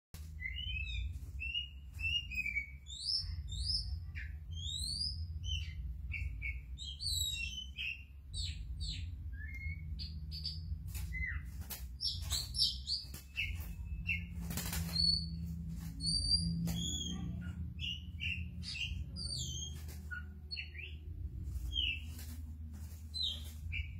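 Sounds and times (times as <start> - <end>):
bird singing whistled notes: 0.3 - 15.4.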